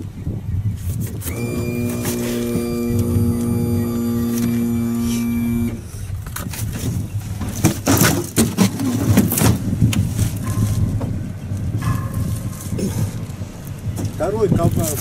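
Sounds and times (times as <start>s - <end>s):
steady low hum: 1.2s - 6.3s.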